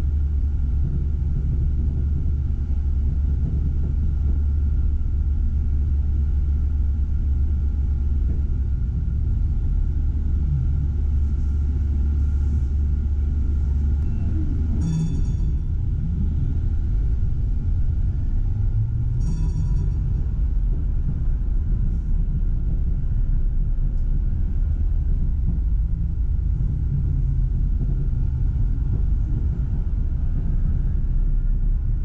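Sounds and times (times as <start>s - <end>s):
faint steady whine: 0.0s - 32.0s
tram rumbling on track: 0.0s - 32.0s
short high-pitched ring: 14.0s - 15.7s, 19.2s - 20.0s.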